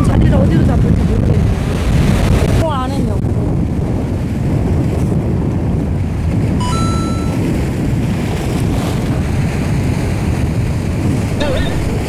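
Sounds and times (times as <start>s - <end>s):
wind buffeting microphone: 0.0s - 12.0s
short high tone: 6.6s - 7.4s.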